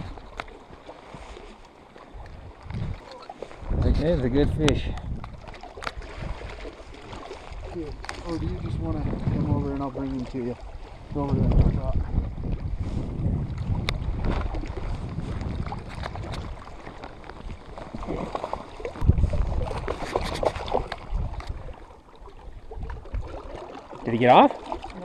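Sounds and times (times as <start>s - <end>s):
wind gusting over microphone: 2.3s - 6.6s, 7.6s - 21.8s.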